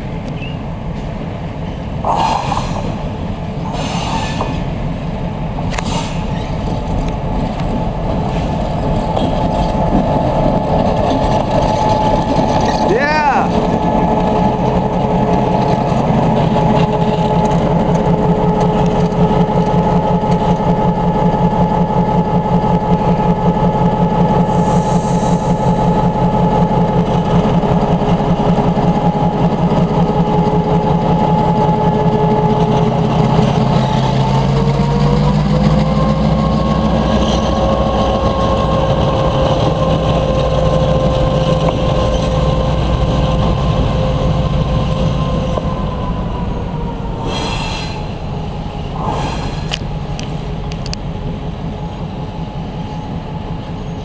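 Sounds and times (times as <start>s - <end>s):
diesel locomotive engine drone: 0.0s - 54.0s
air hissing: 3.6s - 4.7s, 24.5s - 25.9s, 47.2s - 48.2s, 48.9s - 49.9s.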